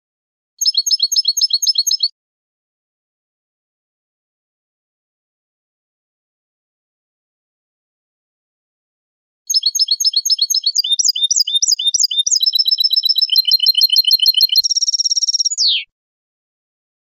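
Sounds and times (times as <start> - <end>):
finch singing: 0.6 - 2.1, 9.5 - 15.9.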